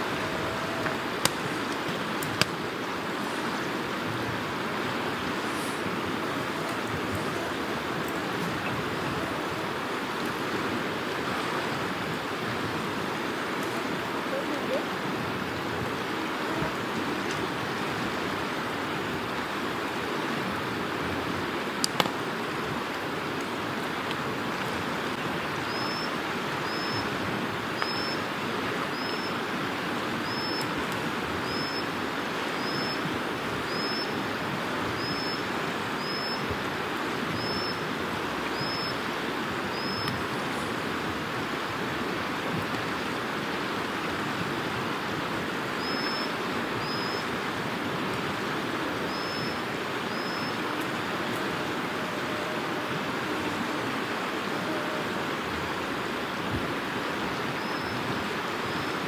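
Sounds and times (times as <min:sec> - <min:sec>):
stream water rushing: 0:00.0 - 0:59.0.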